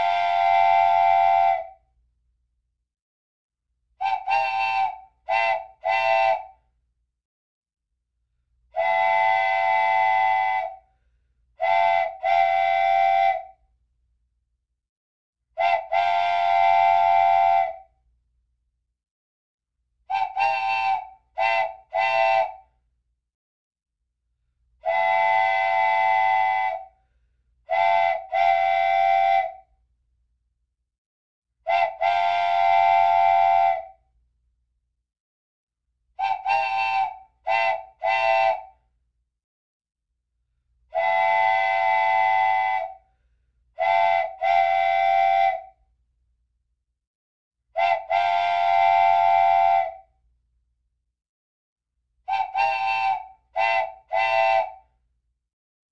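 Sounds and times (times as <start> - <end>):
steam whistle blasts: 0.0 - 1.8, 4.0 - 6.6, 8.8 - 10.8, 11.6 - 13.6, 15.6 - 17.9, 20.1 - 22.6, 24.8 - 26.9, 27.7 - 29.7, 31.7 - 34.0, 36.2 - 38.8, 40.9 - 43.0, 43.8 - 45.8, 47.8 - 50.1, 52.3 - 54.8.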